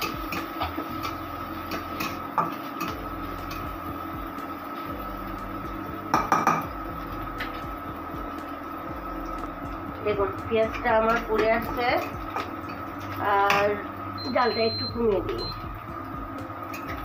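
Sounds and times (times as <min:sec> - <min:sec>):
food frying in oil: 0:00.0 - 0:17.0
steady high hum: 0:00.0 - 0:17.0.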